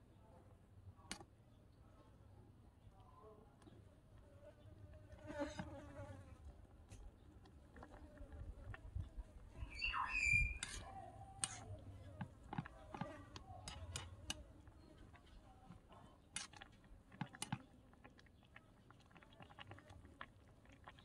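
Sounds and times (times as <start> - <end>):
metal spoon scraping metal wok: 11.4 - 11.7.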